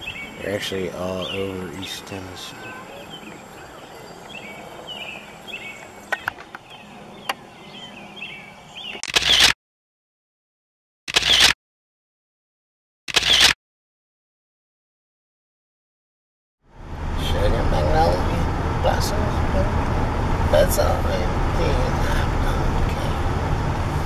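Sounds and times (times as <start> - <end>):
songbirds chirping: 0.0 - 9.4
outdoor background noise: 0.0 - 9.6, 16.7 - 24.0
sharp clicks: 8.9 - 9.6, 11.1 - 11.6, 13.1 - 13.6
camera shutter sound effects: 9.0 - 9.6, 11.1 - 11.6, 13.1 - 13.6.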